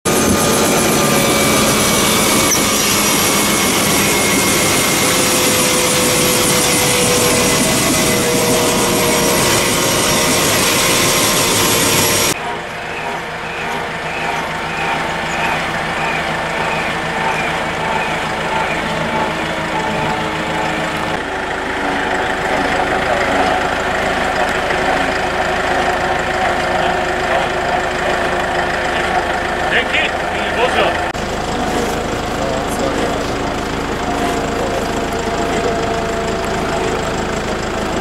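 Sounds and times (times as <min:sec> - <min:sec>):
vehicle engine and road noise: 0:12.3 - 0:38.0.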